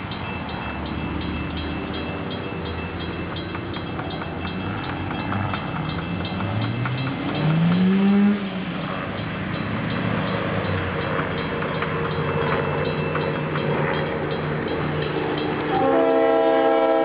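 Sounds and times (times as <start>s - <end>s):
level-crossing warning bell: 0.0s - 17.0s
train horn: 15.7s - 17.0s.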